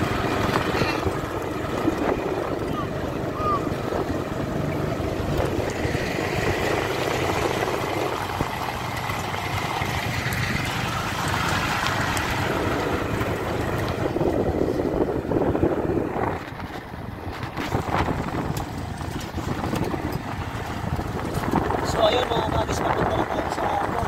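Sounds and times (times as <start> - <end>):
driving on gravel road: 0.0 - 24.0
vehicle engine running: 0.0 - 24.0.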